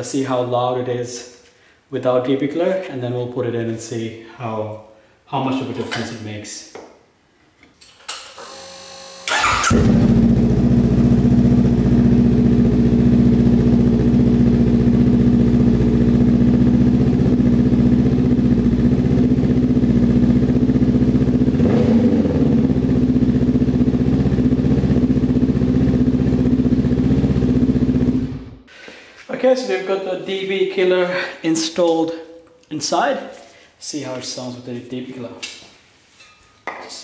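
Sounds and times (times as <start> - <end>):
electric starter cranking: 8.1 - 10.2
motorcycle engine idling loudly: 9.7 - 28.5.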